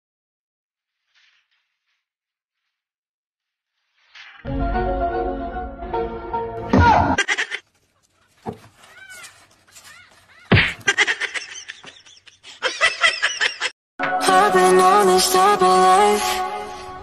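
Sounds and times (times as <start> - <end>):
music: 4.5 - 7.1, 14.0 - 17.0
rapid laughter-like bursts: 7.2 - 7.8.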